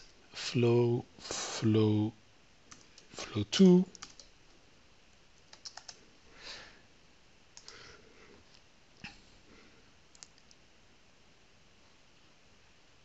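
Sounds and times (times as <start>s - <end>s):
mouse and keyboard clicks: 5.4s - 6.0s, 10.1s - 10.6s.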